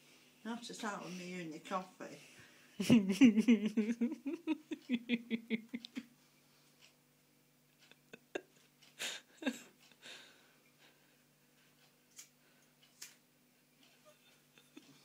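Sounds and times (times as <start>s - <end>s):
short breaths: 10.0s - 11.1s.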